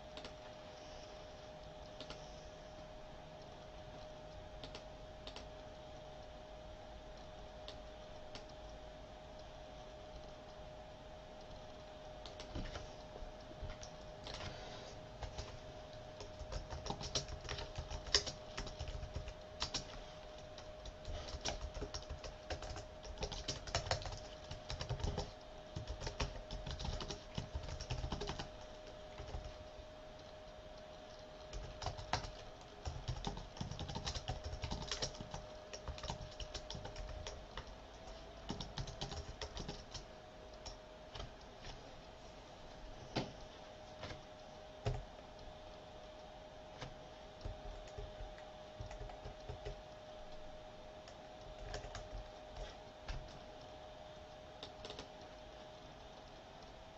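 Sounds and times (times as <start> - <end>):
keyboard typing: 0.0 - 0.5, 1.9 - 2.3, 4.6 - 5.5, 12.2 - 12.9, 15.2 - 30.3, 31.1 - 41.3, 46.8 - 49.9, 51.0 - 53.4, 54.6 - 55.1
faint steady hum: 0.0 - 56.9.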